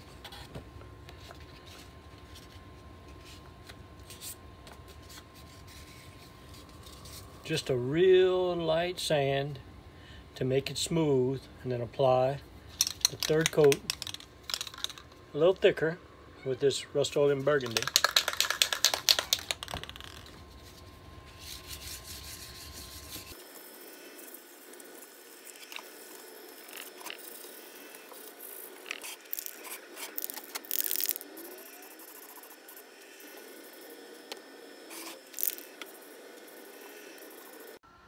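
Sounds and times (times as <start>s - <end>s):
handling sounds: 12.7s - 15.2s
spray can rattling: 12.8s - 15.2s, 17.6s - 20.3s, 35.3s - 35.7s
spray paint hissing: 34.9s - 36.0s.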